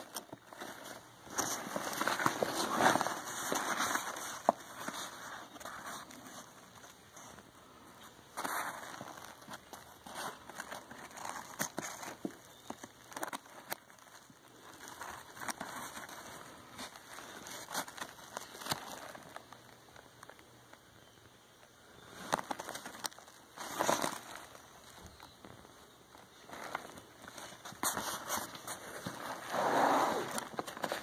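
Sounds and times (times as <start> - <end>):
backpack fabric rustling: 0.0 - 7.3, 26.3 - 31.0.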